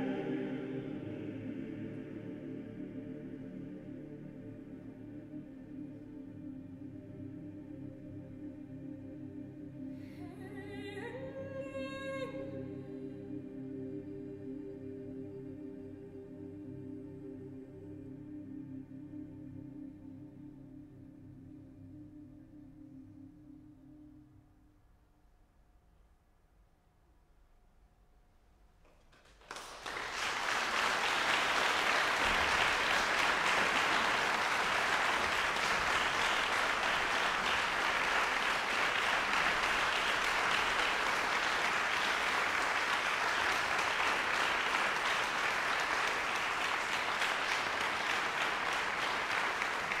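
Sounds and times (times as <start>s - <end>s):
audience applauding: 29.1s - 50.0s.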